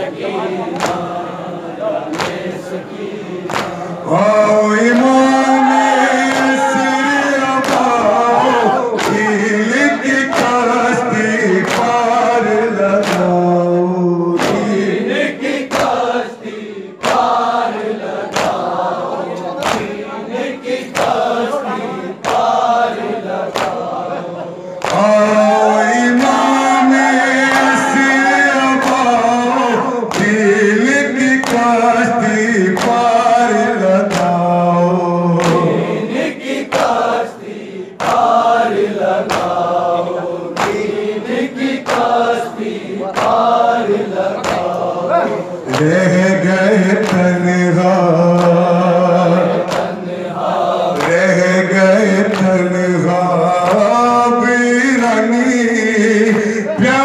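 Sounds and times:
group chanting: 0.0s - 57.0s
man reciting through microphone: 0.0s - 57.0s
hands slapping chests: 0.8s - 1.1s, 2.1s - 2.6s, 3.4s - 3.9s, 7.6s - 9.4s, 11.6s - 12.2s, 13.0s - 13.4s, 14.4s - 16.1s, 17.0s - 18.8s, 19.6s - 20.0s, 20.9s - 21.4s, 22.2s - 24.0s, 24.8s - 25.2s, 26.1s - 28.1s, 29.8s - 30.4s, 31.4s - 31.7s, 32.7s - 33.1s, 34.0s - 34.4s, 35.4s - 39.7s, 40.5s - 44.9s, 47.0s - 47.3s, 48.3s - 48.7s, 49.4s - 50.1s, 50.9s - 51.3s, 52.2s - 52.6s.

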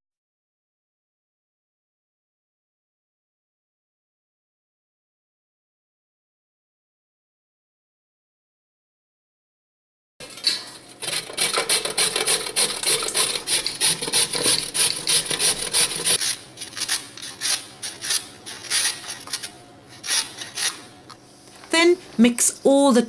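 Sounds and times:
carrot grating on metal grater: 10.2s - 20.9s.

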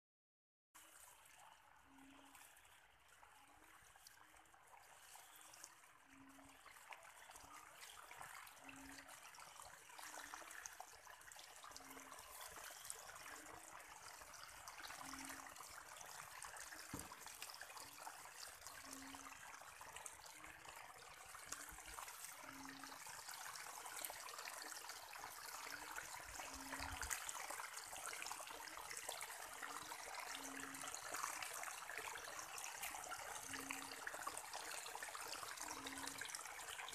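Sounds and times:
water trickling down a channel: 0.8s - 36.9s.

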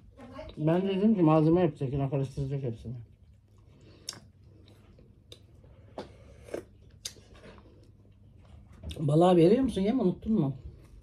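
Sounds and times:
low room hum: 0.0s - 11.0s
chewing clicks and smacks: 3.1s - 8.3s.

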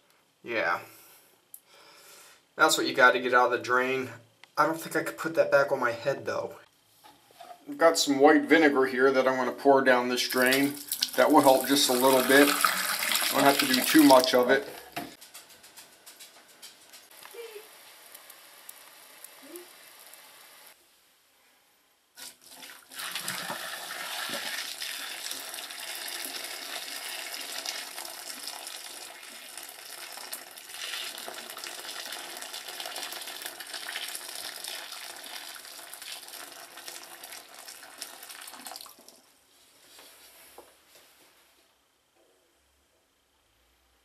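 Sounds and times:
water pouring into a bathtub: 10.2s - 14.9s, 22.2s - 39.3s
water boiling in a pot: 10.3s - 14.8s, 17.1s - 20.8s, 22.2s - 39.4s.

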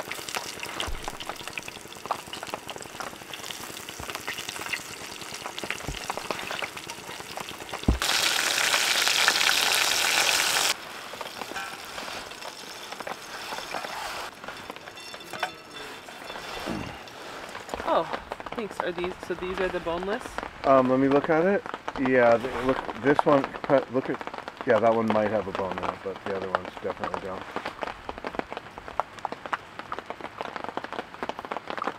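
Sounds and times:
fish fillets sizzling in pan: 0.0s - 14.9s
loud sizzle: 0.0s - 25.8s.

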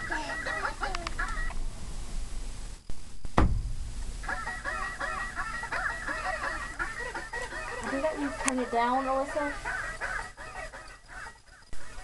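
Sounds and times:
squeaky cartoon voices: 0.0s - 1.5s.

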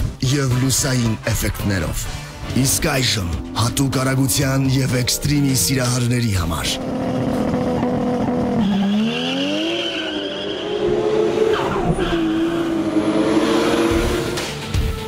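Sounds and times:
car engine revving: 2.4s - 14.8s
tyres squealing on tarmac: 8.6s - 10.9s.

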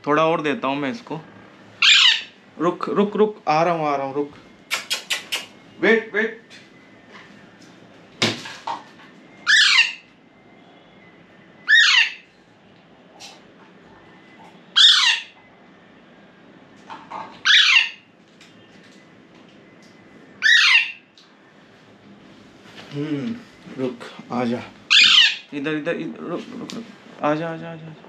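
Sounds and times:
baby parrot begging calls: 1.8s - 2.4s, 9.4s - 10.1s, 11.7s - 12.2s, 14.8s - 15.4s, 17.4s - 18.0s, 20.4s - 21.0s, 24.9s - 25.5s.

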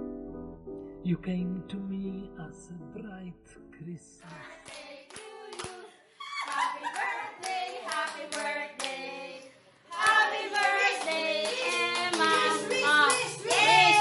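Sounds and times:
people singing: 3.8s - 14.0s
hands clapping: 4.6s - 9.0s, 10.0s - 14.0s.

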